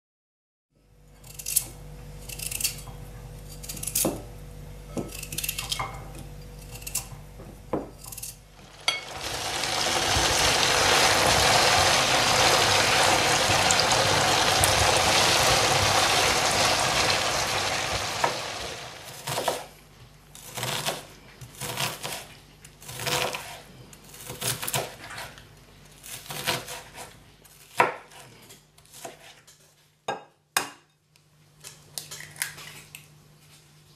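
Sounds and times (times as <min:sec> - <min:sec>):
knife cutting potato: 0:01.2 - 0:04.3, 0:05.0 - 0:05.8, 0:06.6 - 0:07.2, 0:19.1 - 0:19.7, 0:20.4 - 0:25.4, 0:26.0 - 0:29.5
potato frying in hot oil: 0:08.4 - 0:19.7.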